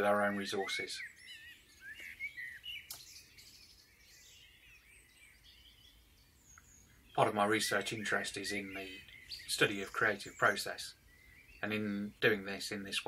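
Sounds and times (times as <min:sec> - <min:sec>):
small birds chirping: 0:00.0 - 0:13.0
sharp click: 0:02.9 - 0:03.1.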